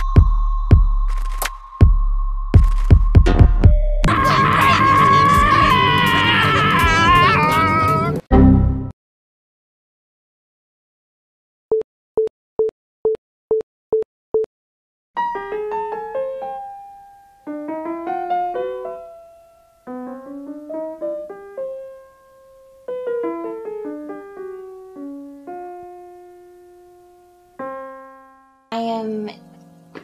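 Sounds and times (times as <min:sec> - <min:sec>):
piano melody: 0:15.2 - 0:30.0.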